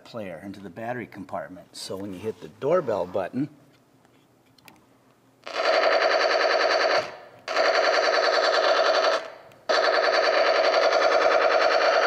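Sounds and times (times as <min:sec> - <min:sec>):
recorded machine-gun fire: 0:05.4 - 0:12.0.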